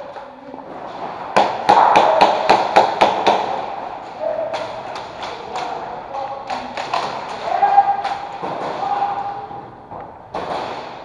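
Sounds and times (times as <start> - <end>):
airsoft guns firing: 1.3 - 3.8, 10.3 - 11.0.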